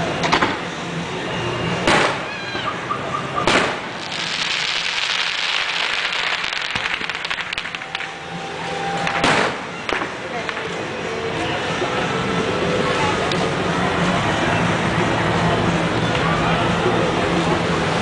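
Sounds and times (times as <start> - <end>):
firework shell bursting: 3.5 - 8.2
fireworks crackling: 3.5 - 10.8.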